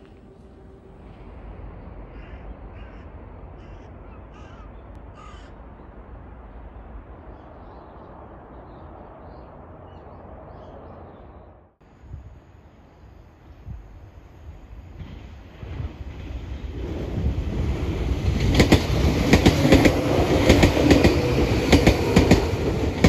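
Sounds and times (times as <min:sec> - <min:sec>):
steady low rumble: 0:00.0 - 0:15.7
crows cawing: 0:02.1 - 0:05.6.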